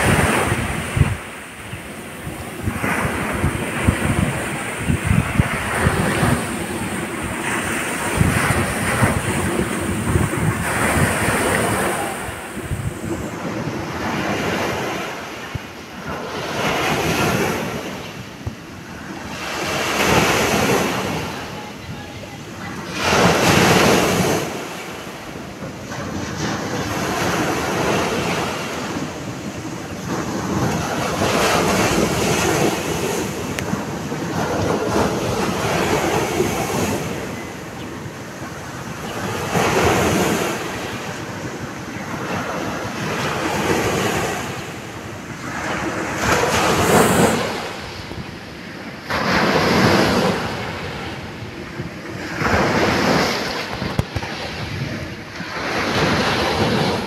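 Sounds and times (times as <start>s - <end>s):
waves washing up gravel beach: 0.0s - 15.3s, 38.5s - 48.0s.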